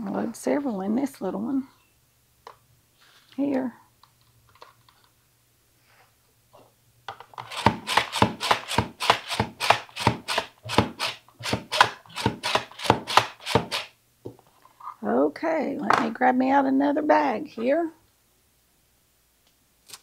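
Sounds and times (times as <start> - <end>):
slicer cutting mushrooms: 7.4 - 13.9.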